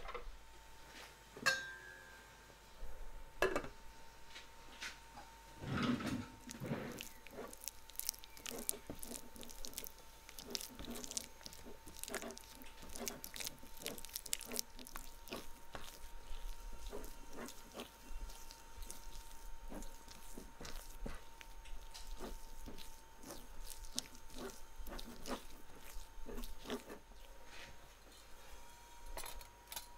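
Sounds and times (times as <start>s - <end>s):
spatula scraping metal bowl: 5.6s - 27.7s
wire whisk mixing: 6.4s - 27.6s.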